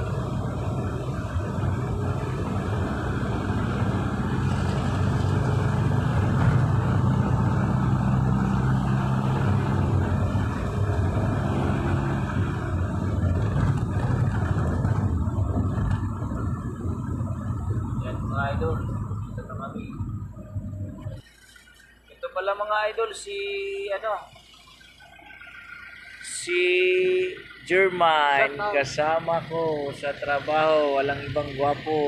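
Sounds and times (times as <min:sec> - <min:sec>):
car engine and road noise: 0:00.0 - 0:32.0.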